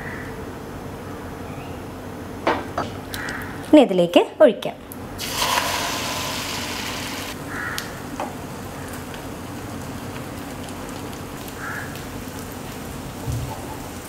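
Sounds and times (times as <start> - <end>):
batter sizzling in hot oil: 5.2 - 14.0.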